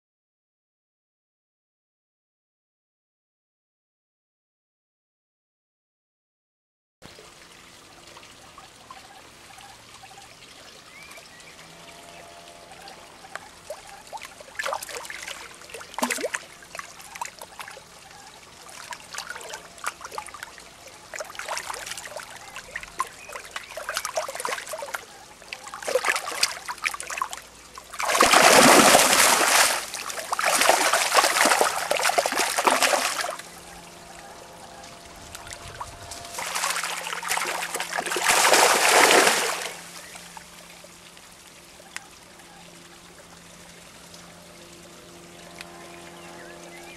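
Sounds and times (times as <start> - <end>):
fish splashing in shallow water: 12.7 - 42.2.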